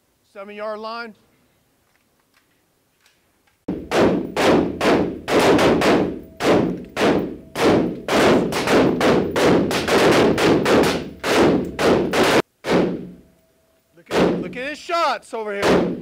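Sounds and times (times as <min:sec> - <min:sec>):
rifle shots echoing indoors: 0:03.7 - 0:13.2.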